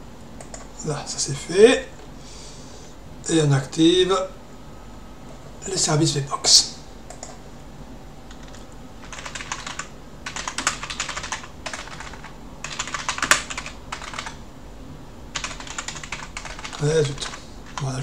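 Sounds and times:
typing on computer keyboard: 0.4s - 0.7s, 7.1s - 7.4s, 8.3s - 14.4s, 15.4s - 17.9s.

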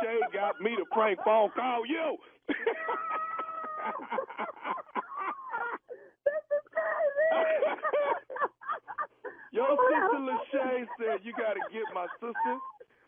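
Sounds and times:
person wailing and groaning: 2.7s - 4.1s, 5.0s - 8.0s.

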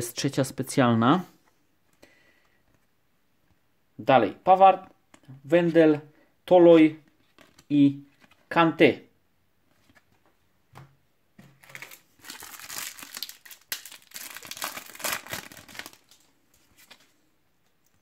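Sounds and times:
foil wrapper crinkling: 11.6s - 17.1s
foil tearing crackle: 11.7s - 16.2s.

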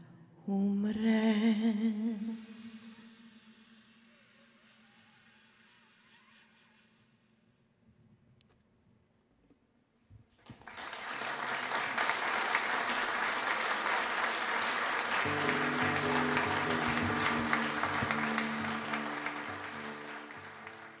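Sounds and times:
audience applauding: 10.4s - 21.0s.

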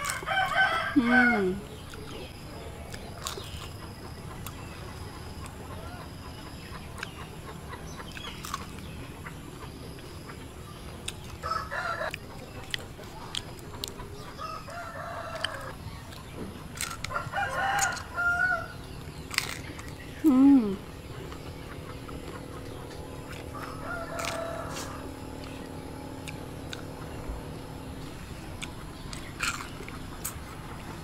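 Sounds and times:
rooster crowing: 0.0s - 1.6s, 11.4s - 12.2s, 14.4s - 15.8s, 17.0s - 18.8s, 23.5s - 25.3s.

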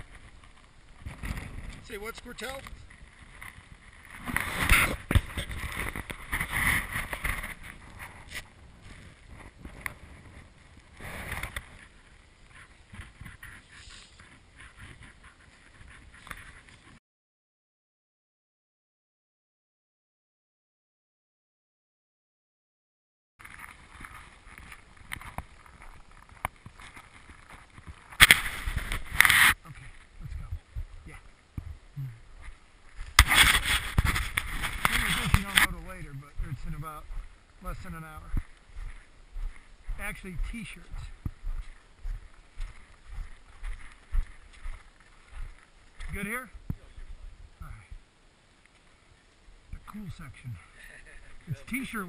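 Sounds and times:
wind buffeting microphone: 0.0s - 16.8s, 23.8s - 37.4s, 38.2s - 48.1s
footsteps crunching in snow: 0.0s - 17.0s, 23.4s - 47.2s.

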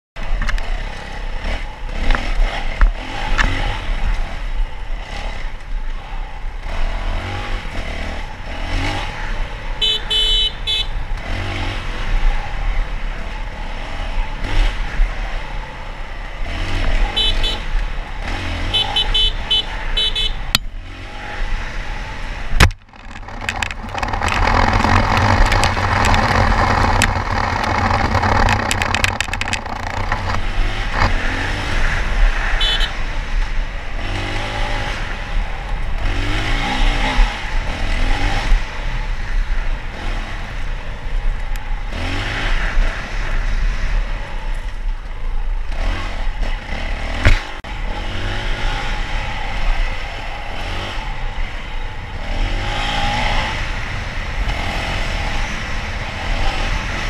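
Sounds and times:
dirt bike engine revving: 0.6s - 44.5s, 45.6s - 57.0s
rattles and knocks from bumps: 22.6s - 31.2s.

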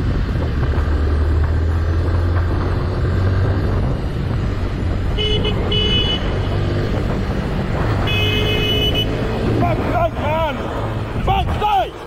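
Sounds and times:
motorcycle engine: 0.0s - 11.2s
wind rumble: 0.0s - 12.0s
horn toots: 5.1s - 6.6s, 8.0s - 9.3s.

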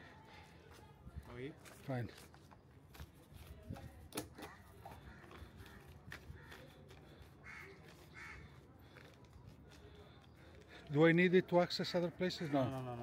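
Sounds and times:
faint crows cawing: 4.4s - 9.2s, 12.0s - 13.0s.

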